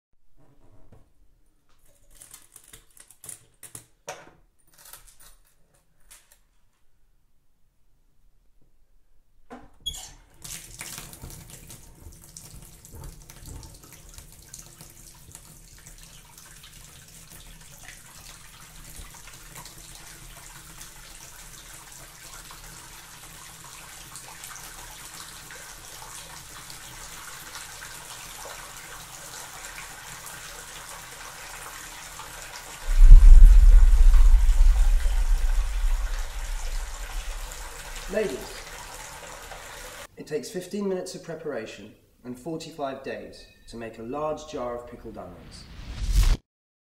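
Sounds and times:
deep rushing sound: 32.9 - 38.2
tap water running: 36.5 - 40.1.

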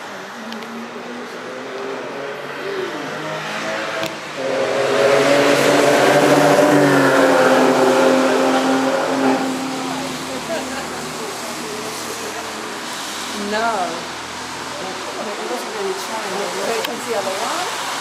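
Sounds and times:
car engine accelerating past: 1.2 - 13.4
tyre hiss on wet road: 5.8 - 18.0.

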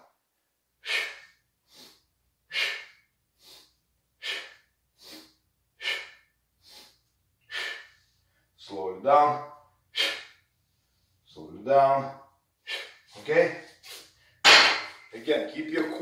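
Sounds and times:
man breathing hard: 0.8 - 8.6, 9.9 - 10.5, 12.6 - 14.4.

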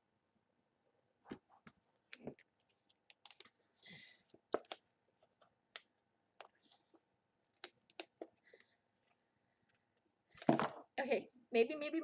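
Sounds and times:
slime squelching and clicking: 1.6 - 3.6, 4.2 - 10.1.

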